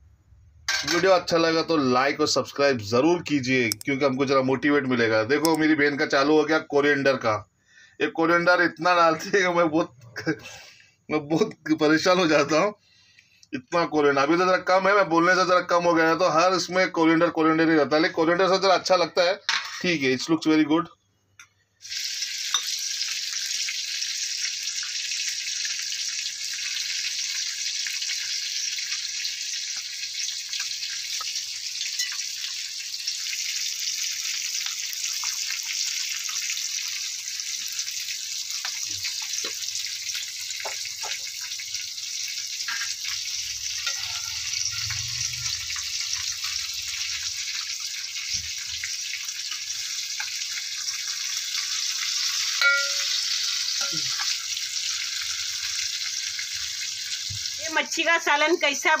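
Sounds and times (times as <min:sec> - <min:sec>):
steady high hiss: 0:51.7 - 0:55.7.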